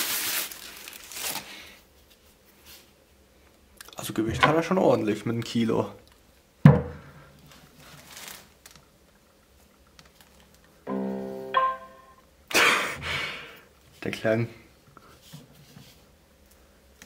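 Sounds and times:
speaker set down on wooden table: 0:06.7 - 0:07.0
handling rustle: 0:07.4 - 0:08.8
two-tone power-on chime: 0:10.9 - 0:12.2.

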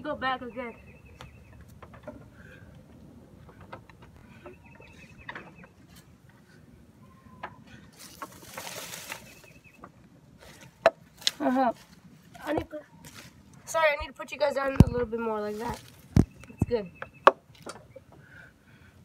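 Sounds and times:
bird trill: 0:00.3 - 0:01.8, 0:04.2 - 0:05.9, 0:09.0 - 0:09.9, 0:16.2 - 0:18.1.

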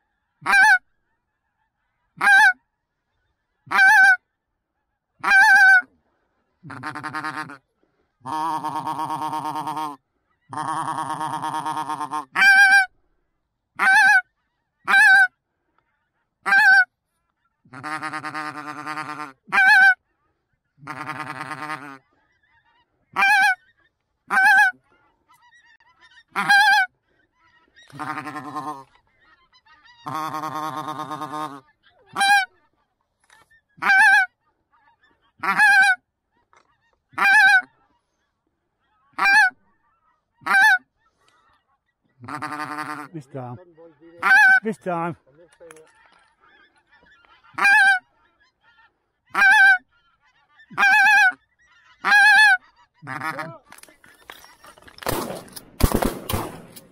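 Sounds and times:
goose call honks: 0:00.4 - 0:00.8, 0:02.2 - 0:02.6, 0:03.7 - 0:04.2, 0:05.2 - 0:05.9, 0:06.6 - 0:07.6, 0:08.2 - 0:12.9, 0:13.8 - 0:14.2, 0:14.8 - 0:15.3, 0:16.4 - 0:16.9, 0:17.7 - 0:20.0, 0:20.8 - 0:23.6, 0:24.3 - 0:24.8, 0:25.6 - 0:26.9, 0:27.8 - 0:32.6, 0:33.8 - 0:36.0, 0:36.6 - 0:37.8, 0:39.0 - 0:41.4, 0:42.2 - 0:48.5, 0:49.3 - 0:55.2.

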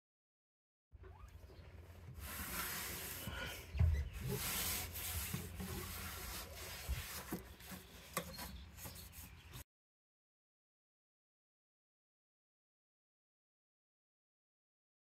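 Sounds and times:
cloth wiping a dashboard: 0:01.9 - 0:09.6.

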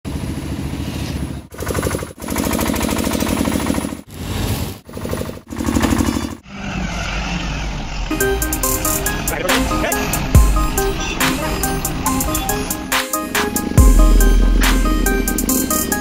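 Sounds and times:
rapid mechanical rattling: 0:01.4 - 0:04.1, 0:04.8 - 0:06.4
low steady rumble: 0:13.8 - 0:16.0.

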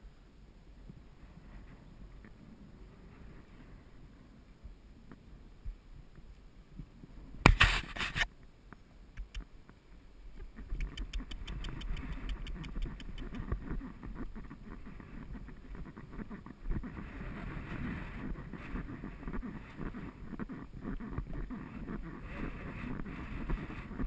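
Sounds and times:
hoofbeats and tack clicking: 0:09.2 - 0:09.5, 0:10.4 - 0:13.9.

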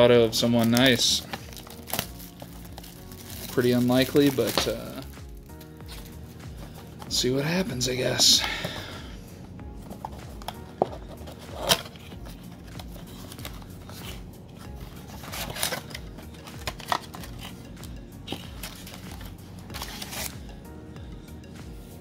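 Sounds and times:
quiet background music: 0:00.0 - 0:22.0
cardboard tearing and crinkling: 0:00.6 - 0:05.1, 0:10.4 - 0:17.6, 0:18.4 - 0:20.4.

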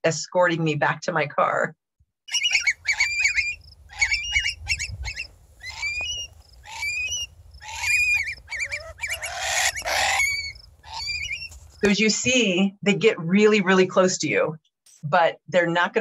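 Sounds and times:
curlews alarm calls: 0:02.3 - 0:11.7.

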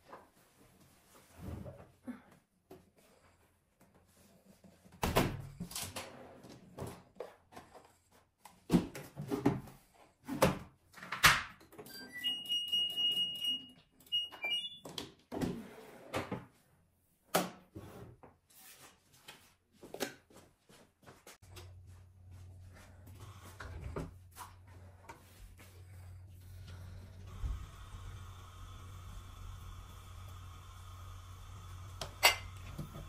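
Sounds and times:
washing machine electronic beeps: 0:11.8 - 0:14.9.

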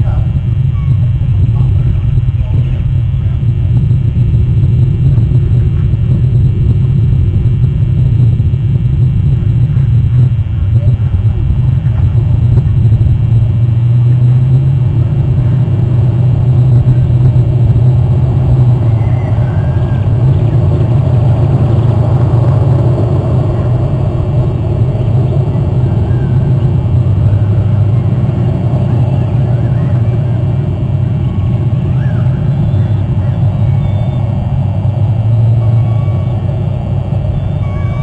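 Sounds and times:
low rumble: 0:00.0 - 0:38.0
faint high chirp: 0:31.9 - 0:34.7, 0:35.3 - 0:38.0.

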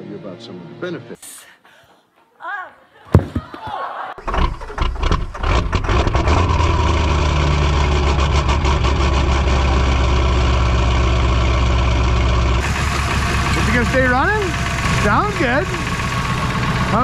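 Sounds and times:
diesel engine starting and idling: 0:04.2 - 0:17.0.

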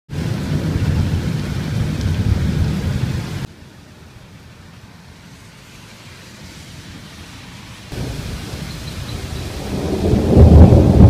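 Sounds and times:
thunder rumbling: 0:00.1 - 0:03.5, 0:07.9 - 0:11.0
rain hissing: 0:00.1 - 0:11.0.

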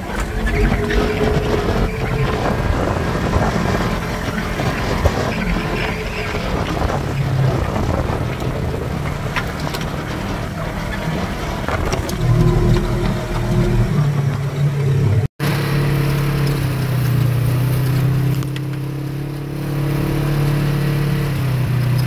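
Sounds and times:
wind noise: 0:00.0 - 0:15.3
tyre noise on dirt: 0:00.0 - 0:22.0
utility vehicle engine running: 0:00.0 - 0:22.0.

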